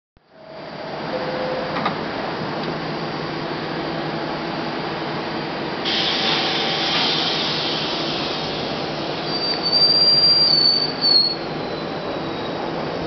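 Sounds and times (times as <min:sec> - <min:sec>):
subway train running: 0:00.3 - 0:13.0
train hiss: 0:05.8 - 0:11.0
wheels squealing on rails: 0:06.1 - 0:12.9.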